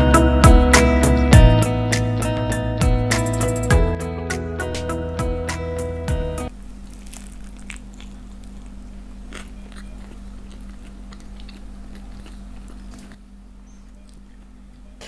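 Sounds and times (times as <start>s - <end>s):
steady low hum: 1.3s - 15.0s
person chewing a burger: 6.7s - 15.0s.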